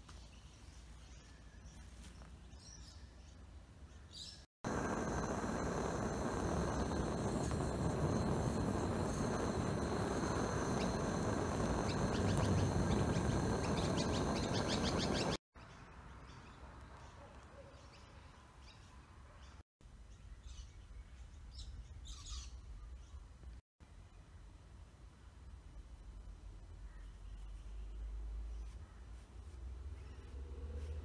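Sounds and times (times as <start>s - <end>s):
birds chirping: 0.3s - 19.6s
gas torch flame rushing: 4.6s - 15.4s.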